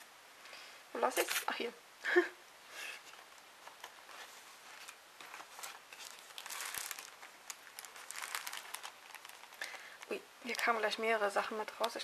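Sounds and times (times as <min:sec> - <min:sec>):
packaging rustling and crinkling: 0:03.2 - 0:11.1.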